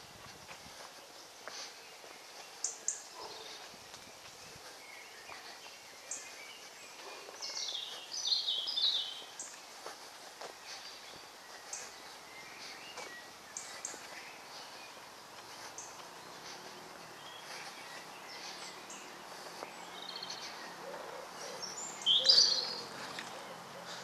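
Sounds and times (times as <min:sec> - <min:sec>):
small birds chirping: 0:00.0 - 0:24.0
low repeated bird notes: 0:00.8 - 0:24.0
loud bird call: 0:20.2 - 0:24.0.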